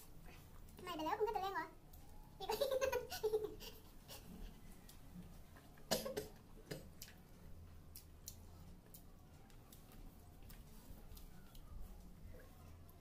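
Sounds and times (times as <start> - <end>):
chewing: 6.7 - 13.0.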